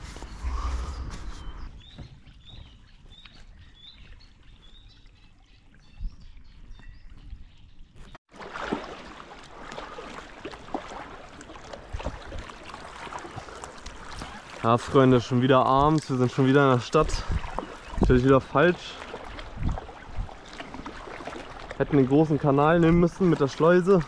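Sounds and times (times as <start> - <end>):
kayak paddles splashing: 0.4 - 24.0
water trickling: 8.4 - 24.0.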